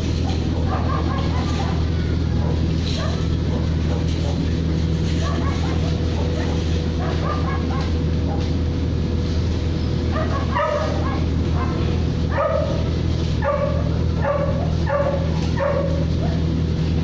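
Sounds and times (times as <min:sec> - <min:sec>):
steady low hum: 0:00.0 - 0:17.0
dog barking: 0:00.6 - 0:01.8, 0:02.4 - 0:04.4, 0:05.2 - 0:08.5, 0:10.1 - 0:16.5.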